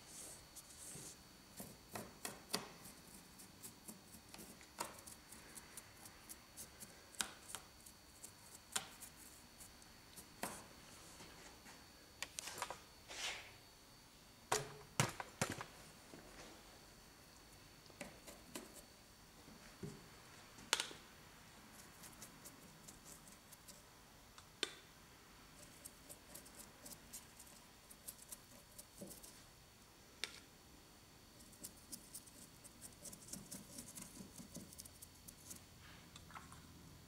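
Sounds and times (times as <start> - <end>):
paintbrush bristles scratching: 31.4 - 35.6.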